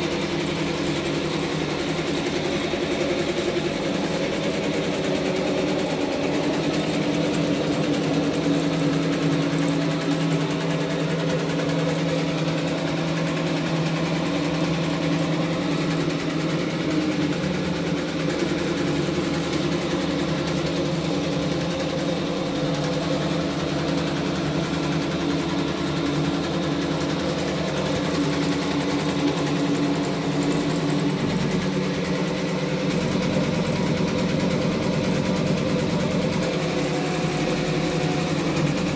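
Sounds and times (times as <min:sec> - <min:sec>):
embroidery machine stitching: 0:00.0 - 0:38.9
motor hum: 0:00.0 - 0:38.9.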